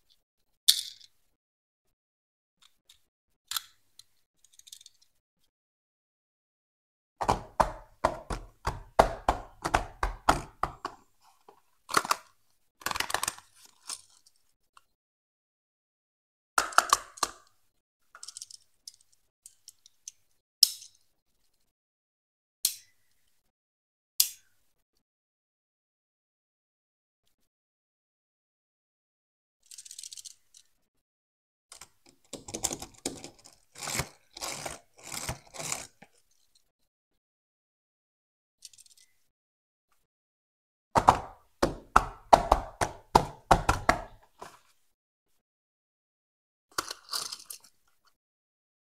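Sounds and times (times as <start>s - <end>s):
box knocks and scrapes: 7.2s - 11.0s
fingers tapping cardboard boxes: 7.2s - 11.0s, 41.0s - 44.3s
toy car wheels rumbling on cardboard: 32.3s - 36.2s.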